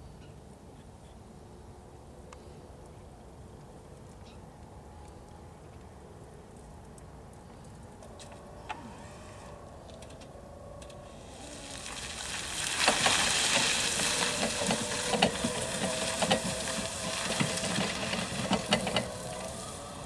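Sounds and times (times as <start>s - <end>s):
electric motor whine: 8.2s - 20.0s
tyres crunching on grit: 11.5s - 20.0s.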